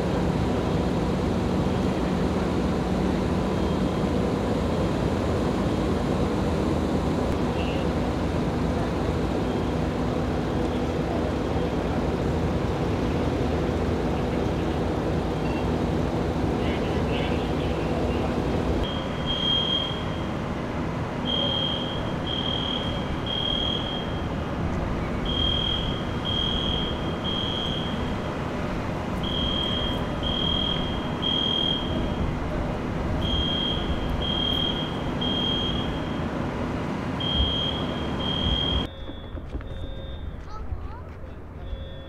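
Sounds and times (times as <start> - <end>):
steady low rumble: 0.0 - 41.9
fire alarm high-pitched beeps: 18.8 - 20.4, 21.2 - 24.4, 25.2 - 28.3, 29.2 - 32.2, 33.2 - 36.2, 37.2 - 40.5, 41.6 - 42.0.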